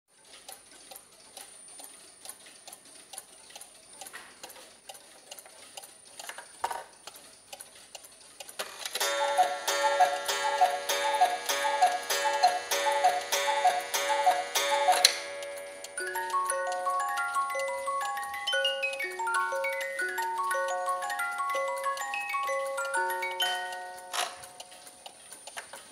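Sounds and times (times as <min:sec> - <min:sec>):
clock ticking: 0:00.1 - 0:25.9
two-note cuckoo call: 0:09.0 - 0:24.7.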